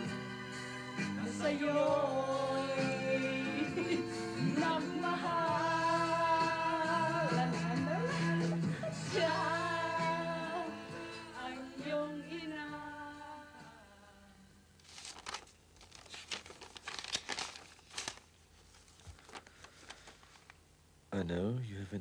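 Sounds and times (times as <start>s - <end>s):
song with singing: 0.0s - 14.4s
paper rustling: 14.8s - 20.6s.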